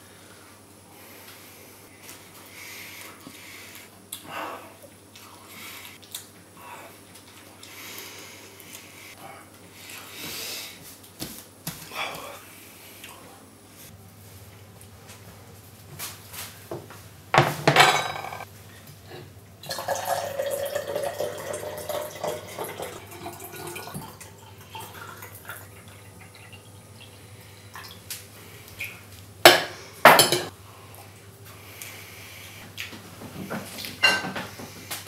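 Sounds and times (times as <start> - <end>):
water poured into glass: 19.7 - 26.7.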